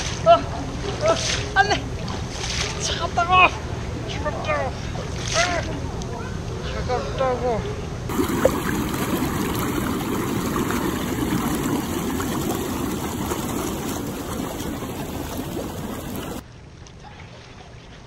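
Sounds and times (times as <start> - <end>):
hot tub jets bubbling: 8.1 - 16.4.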